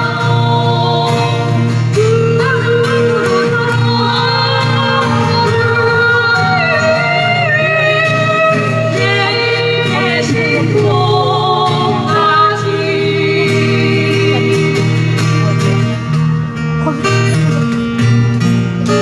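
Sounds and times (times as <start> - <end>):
acoustic guitars strumming: 0.0 - 19.0.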